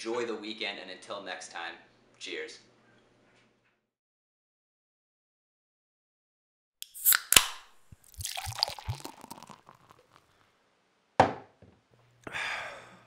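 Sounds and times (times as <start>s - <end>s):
bottle opening clicks: 6.8s - 10.2s
beer fizzing pour with glugs: 7.9s - 10.4s.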